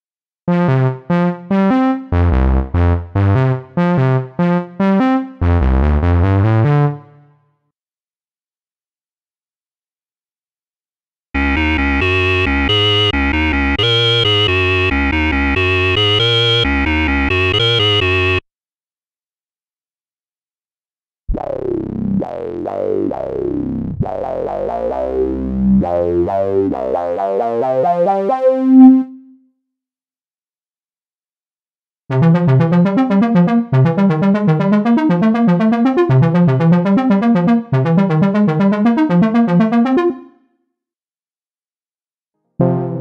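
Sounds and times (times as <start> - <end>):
synthesizer playing notes: 11.4 - 18.4, 21.4 - 29.3, 32.1 - 40.4, 42.6 - 43.0.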